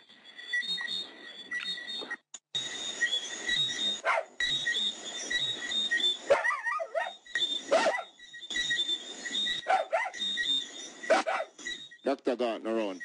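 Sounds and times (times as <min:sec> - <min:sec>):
high repeating chirp: 0:00.0 - 0:13.0
dogs barking and yelping: 0:03.8 - 0:04.6, 0:06.1 - 0:08.2, 0:09.5 - 0:10.3, 0:11.1 - 0:11.8.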